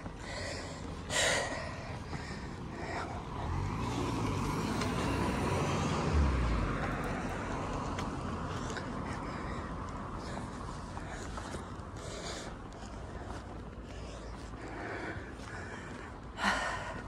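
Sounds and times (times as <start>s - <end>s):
small car driving past: 3.0s - 8.5s.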